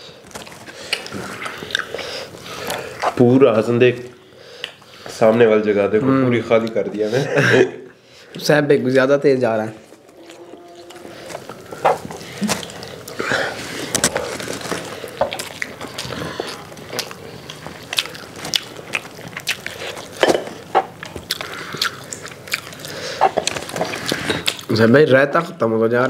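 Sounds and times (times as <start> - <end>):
people chewing and lip-smacking: 0.0 - 3.2, 4.1 - 5.2, 9.8 - 24.8.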